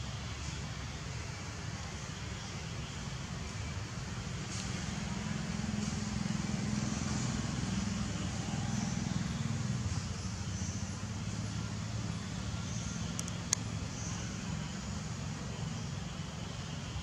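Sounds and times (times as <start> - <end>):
low engine drone: 0.0 - 17.0
steady hiss: 0.0 - 17.0.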